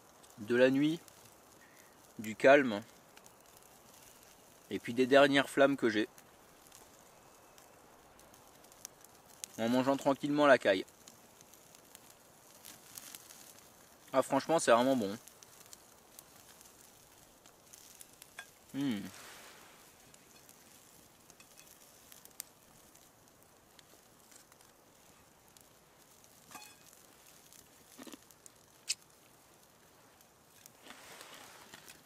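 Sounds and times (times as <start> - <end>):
campfire crackling: 0.0 - 32.0
man humming: 18.7 - 19.1.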